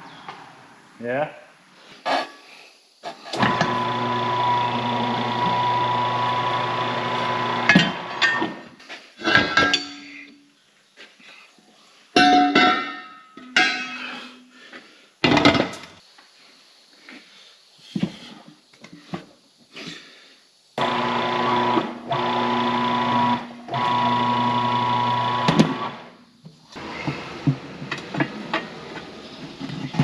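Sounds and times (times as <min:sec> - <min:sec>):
turntable motor running: 0:03.4 - 0:08.2, 0:20.8 - 0:26.1.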